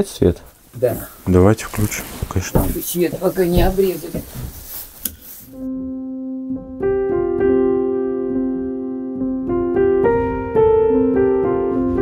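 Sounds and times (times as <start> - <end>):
slow piano music: 5.5 - 12.0.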